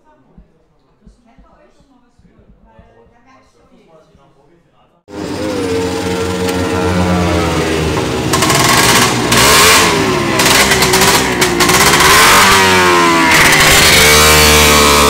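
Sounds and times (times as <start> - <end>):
motorcycle engine revving: 5.1 - 15.0.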